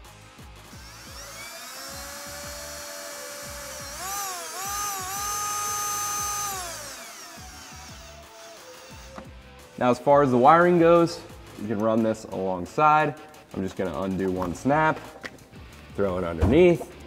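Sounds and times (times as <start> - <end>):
cordless drill driving a screw: 0.6 - 9.4.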